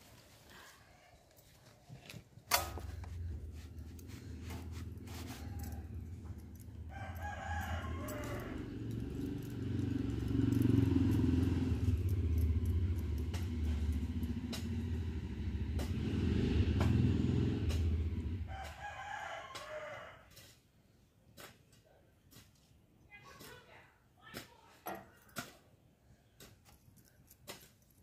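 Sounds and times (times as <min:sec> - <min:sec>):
rooster crowing: 0:04.6 - 0:12.8, 0:17.8 - 0:20.3.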